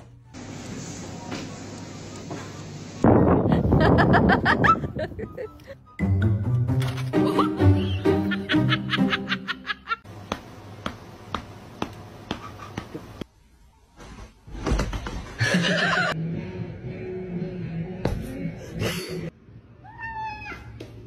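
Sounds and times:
person laughing hard: 3.5 - 5.8, 7.2 - 10.0, 15.4 - 16.2.

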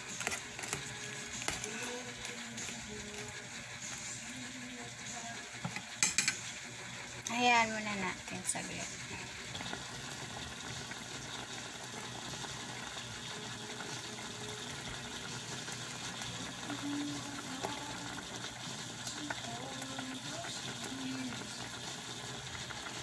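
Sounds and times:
liquid bubbling in pot: 0.0 - 23.0.

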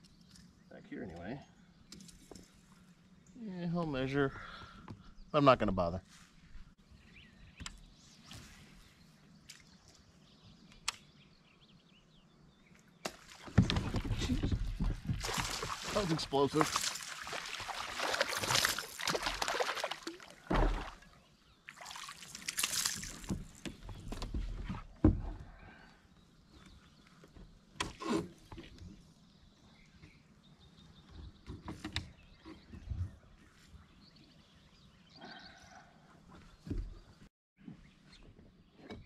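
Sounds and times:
water splashing beside a kayak: 13.1 - 23.9.

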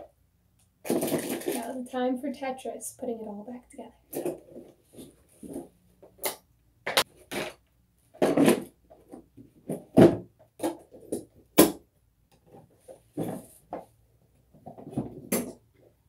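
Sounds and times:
supplies clattering in plastic tool box: 0.8 - 1.8.

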